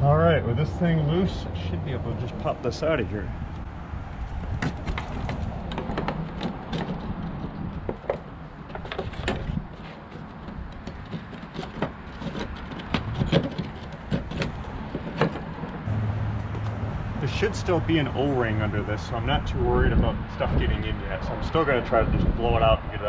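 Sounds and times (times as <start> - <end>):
metallic clicks and scrapes: 4.6 - 15.9.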